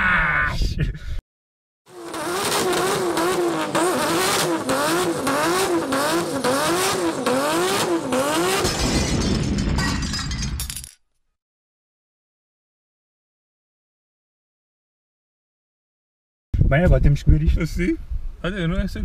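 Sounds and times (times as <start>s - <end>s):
engine revving: 1.9s - 8.7s.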